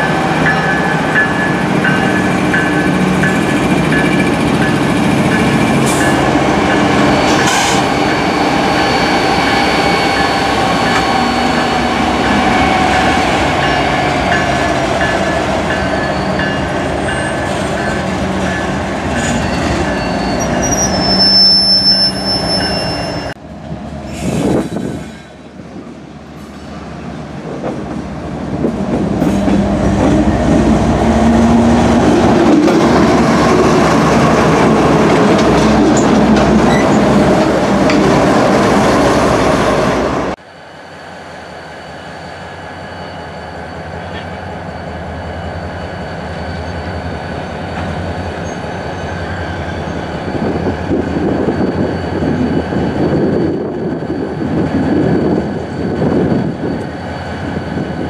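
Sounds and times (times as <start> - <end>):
wheel squeal: 7.1 - 13.8, 19.1 - 23.4, 41.6 - 58.0
wheels rumbling on rails: 22.6 - 40.4
diesel locomotive engines running: 23.3 - 58.0.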